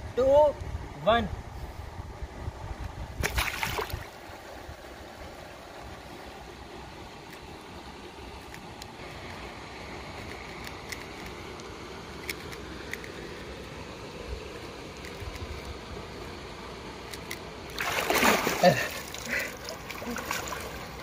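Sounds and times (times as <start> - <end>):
person splashing out of water: 3.2 - 4.1, 17.8 - 20.9
flowing river water: 3.2 - 21.0.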